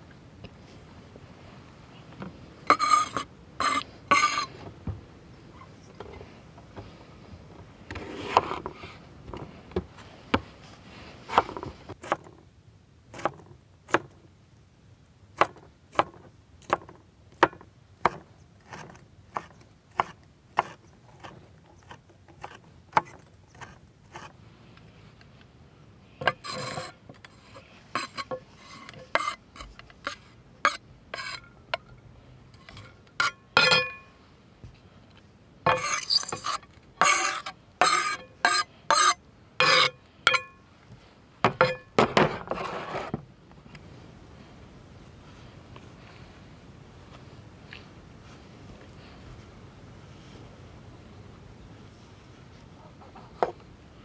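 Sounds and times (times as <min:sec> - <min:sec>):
knife scraping across board: 0:02.7 - 0:04.5, 0:07.9 - 0:08.9, 0:18.6 - 0:24.3, 0:26.2 - 0:31.5, 0:35.7 - 0:40.0, 0:42.2 - 0:43.2.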